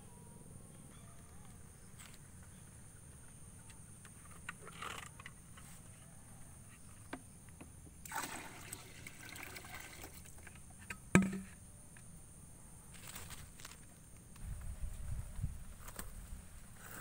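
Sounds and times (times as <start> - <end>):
bucket knock: 11.2 - 11.5.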